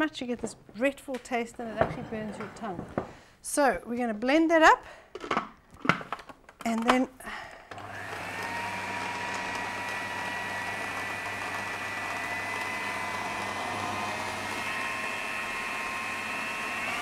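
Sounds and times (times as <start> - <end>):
food processor motor whining: 7.7 - 17.0.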